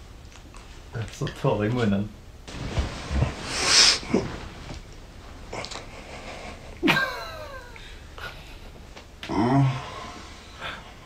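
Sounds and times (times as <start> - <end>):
low thumps: 2.5 - 5.4
breathy rustling exhale: 3.1 - 4.8
person moaning: 9.3 - 10.2.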